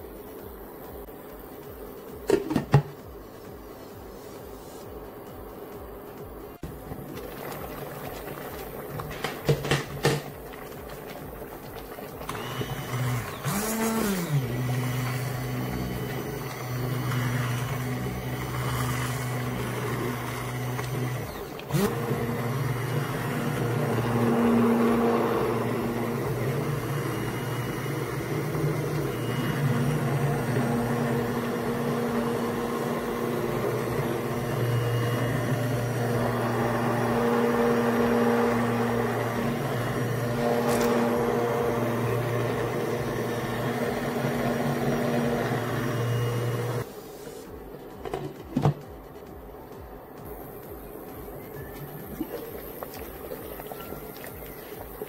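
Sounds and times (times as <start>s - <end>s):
immersion blender motor hum: 12.2s - 46.9s.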